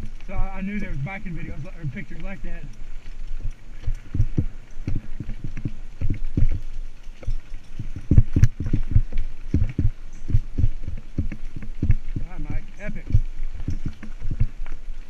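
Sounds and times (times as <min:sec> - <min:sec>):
bike thumping over bumpy dirt: 0:03.8 - 0:14.8.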